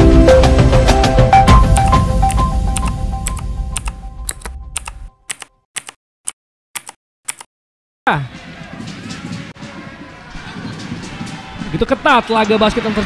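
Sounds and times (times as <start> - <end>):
keyboard key clicks: 1.7 - 6.0, 6.8 - 7.5.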